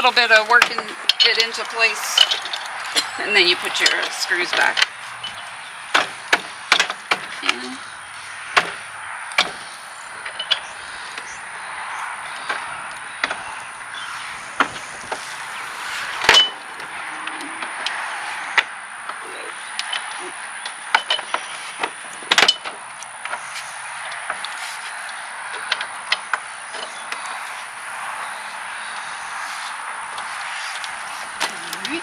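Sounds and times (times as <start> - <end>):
small metal clicks and knocks: 0.6 - 7.9, 8.6 - 11.4, 16.3 - 27.6.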